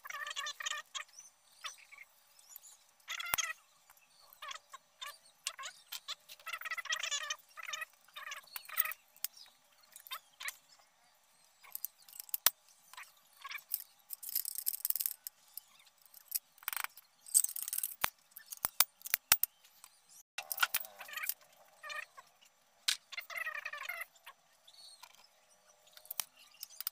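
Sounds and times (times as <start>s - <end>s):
metallic clicks and rattles: 13.6s - 19.5s, 20.4s - 21.4s.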